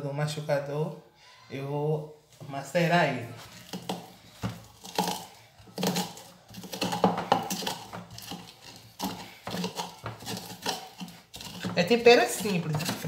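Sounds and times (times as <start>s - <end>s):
wooden pestle pounding in mortar: 4.8s - 13.0s.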